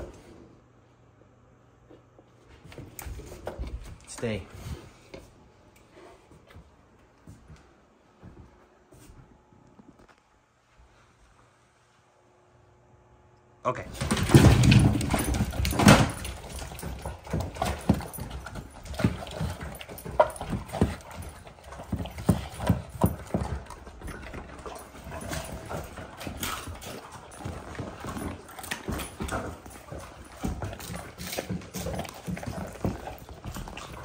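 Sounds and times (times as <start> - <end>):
dog claws clattering on wood floor: 13.9 - 34.0
dogs crunching food: 13.9 - 34.0.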